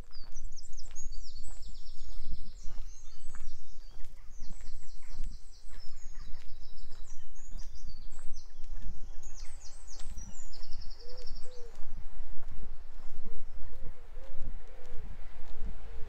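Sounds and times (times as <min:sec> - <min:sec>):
footsteps: 0:00.0 - 0:16.0
songbirds singing trills: 0:00.0 - 0:16.0
short low bird calls: 0:04.3 - 0:15.2.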